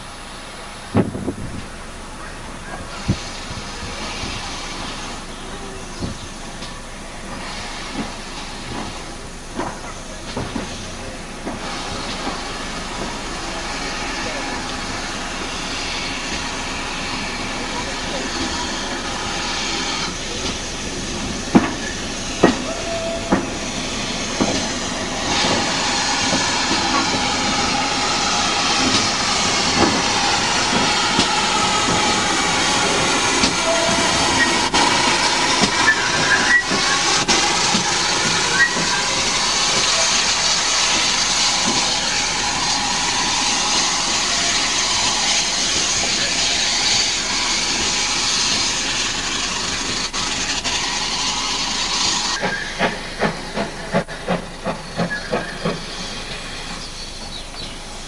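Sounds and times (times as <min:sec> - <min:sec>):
hiss of escaping steam: 0:00.0 - 0:58.0
steam locomotive exhaust chuffs: 0:00.0 - 0:58.0.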